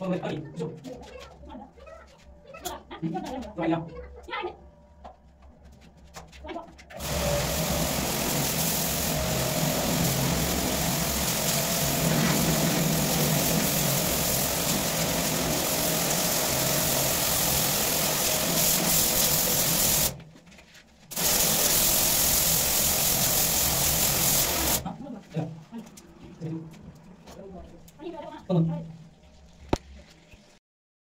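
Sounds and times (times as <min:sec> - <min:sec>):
motor hum: 0:07.0 - 0:20.1
pressure washer jet hissing: 0:07.0 - 0:20.2, 0:21.1 - 0:24.9.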